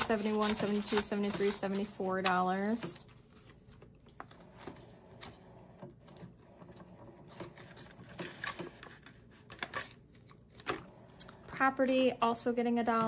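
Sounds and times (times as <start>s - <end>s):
paper and plastic rustling: 0.0s - 5.5s, 6.1s - 10.8s.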